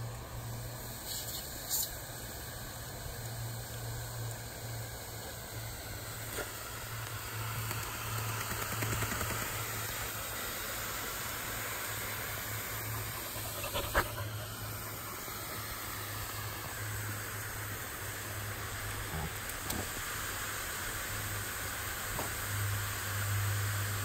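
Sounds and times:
lawn sprinkler water spray: 0:00.0 - 0:24.0
dogs panting: 0:12.9 - 0:14.8.

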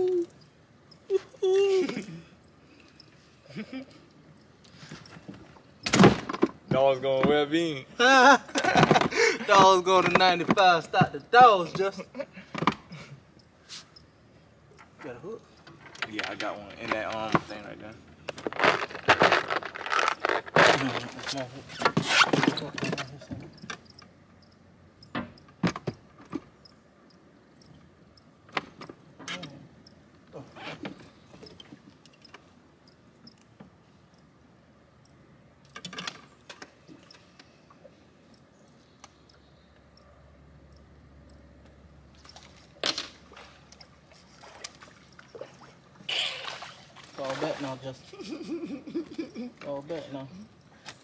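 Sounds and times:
water splashing and sloshing: 0:14.7 - 0:24.2, 0:42.1 - 0:49.8.

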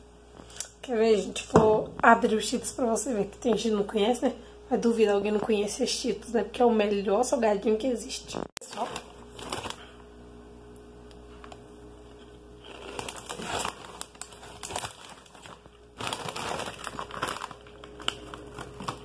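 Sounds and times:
plastic snack bag crinkling: 0:08.6 - 0:09.9, 0:12.6 - 0:19.0.

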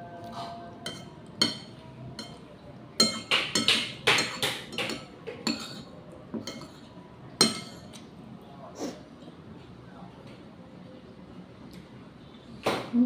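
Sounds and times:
metal spoon clinking on plate: 0:00.4 - 0:06.8, 0:07.4 - 0:08.0.

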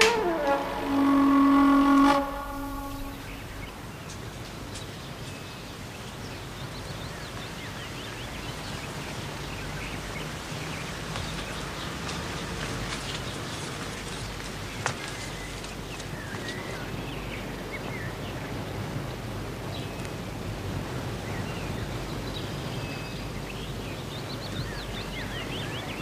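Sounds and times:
electronic tone chord: 0:00.0 - 0:03.8.

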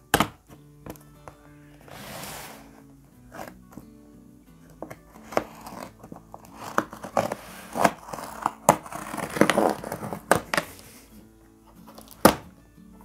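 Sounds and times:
knife slitting packing tape: 0:05.2 - 0:11.0.

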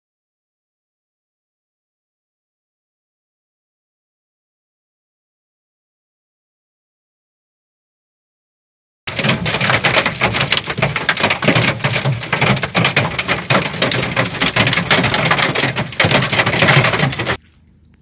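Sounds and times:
hailstones clattering on hard surface: 0:09.1 - 0:17.4.

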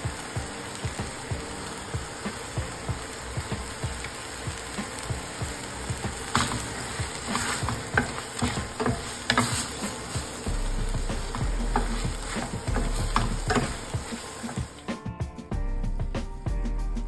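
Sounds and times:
curry sizzling: 0:00.0 - 0:17.0
spatula scraping metal pot: 0:06.2 - 0:14.7.

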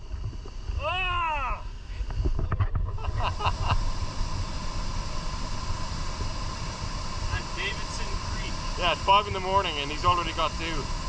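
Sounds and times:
steady low rumble: 0:00.0 - 0:11.0
person whooping shout: 0:00.8 - 0:01.7.

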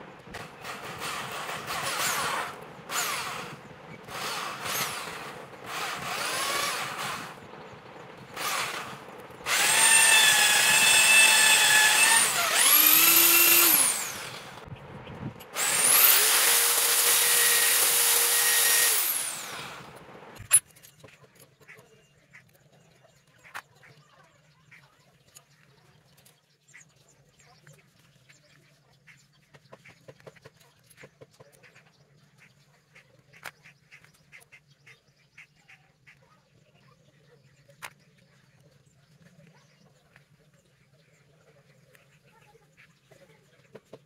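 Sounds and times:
small electric drill running: 0:00.0 - 0:14.7, 0:15.4 - 0:20.5.

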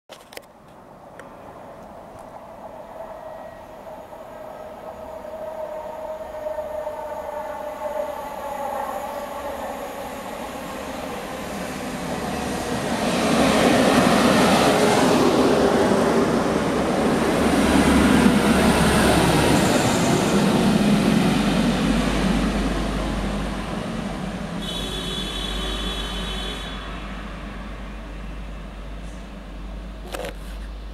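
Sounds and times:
diesel train passing: 0:00.8 - 0:30.9.

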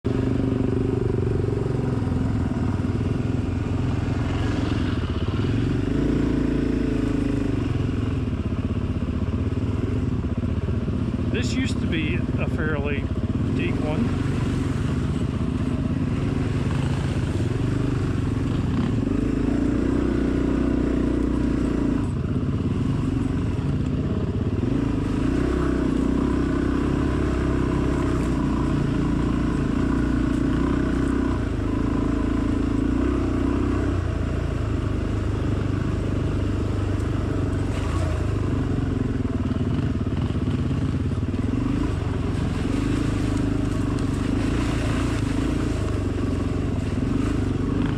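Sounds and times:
dirt bike engine revving: 0:00.1 - 0:08.2, 0:11.1 - 0:47.9.

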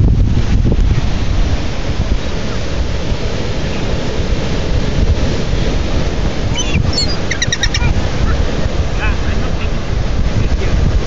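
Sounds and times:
breaking surf: 0:00.0 - 0:11.0
wind buffeting microphone: 0:00.0 - 0:11.0
gull calling: 0:06.5 - 0:08.6.

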